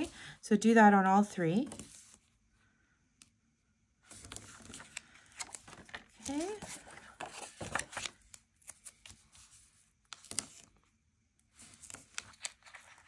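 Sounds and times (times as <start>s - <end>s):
paper rustling and tapping: 4.2s - 9.2s.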